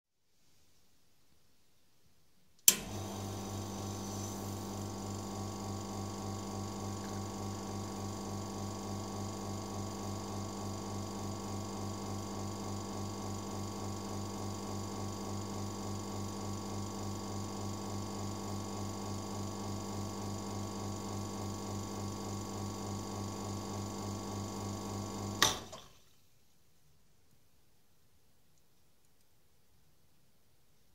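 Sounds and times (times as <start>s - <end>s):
espresso machine pump humming: 2.7s - 25.7s
pressure release hiss: 3.8s - 4.6s.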